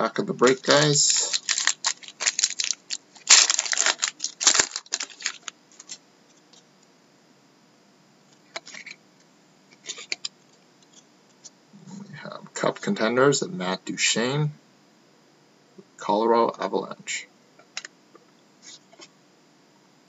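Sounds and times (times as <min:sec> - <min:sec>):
cards rustling: 0:00.3 - 0:06.0
foil wrapper crackling: 0:00.4 - 0:06.0.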